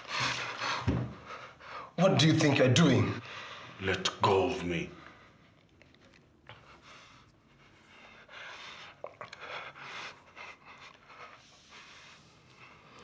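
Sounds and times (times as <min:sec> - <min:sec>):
faint breathing: 0:03.2 - 0:03.8.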